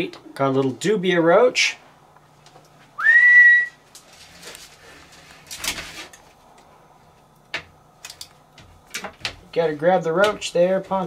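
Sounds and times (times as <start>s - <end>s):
rustling scrape: 3.9s - 6.4s.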